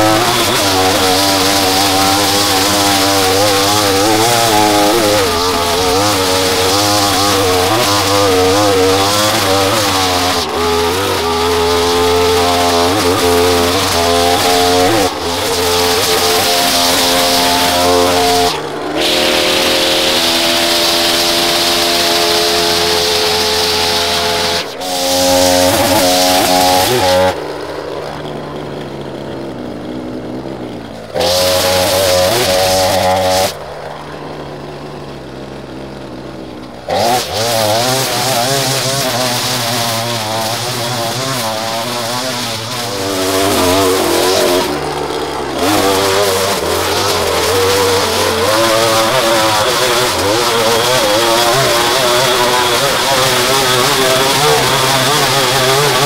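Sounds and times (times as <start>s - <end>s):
lower-pitched engine running: 0.0s - 56.0s
small gasoline engine under load: 0.0s - 56.0s.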